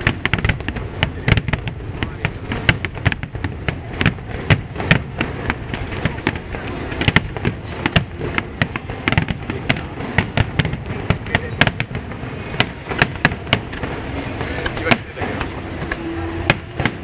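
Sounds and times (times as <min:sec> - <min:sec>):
firework shells bursting: 0:00.0 - 0:17.0.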